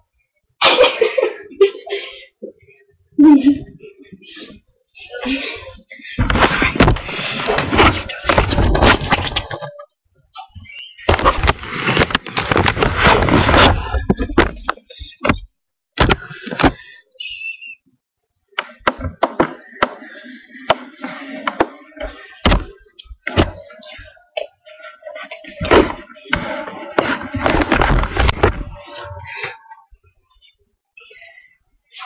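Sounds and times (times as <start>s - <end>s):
laptop being handled: 11.0s - 15.4s, 25.6s - 28.8s
loud rubbing noise: 11.1s - 14.0s.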